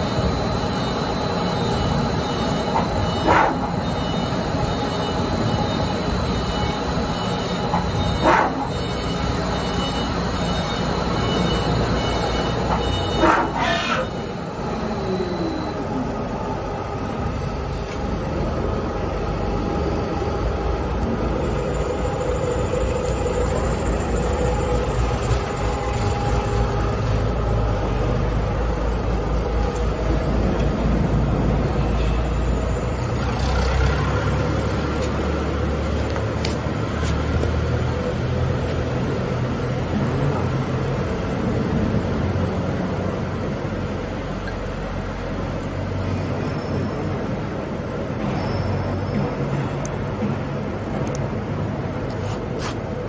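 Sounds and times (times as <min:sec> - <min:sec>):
lathe machine drone: 0:00.0 - 0:36.1.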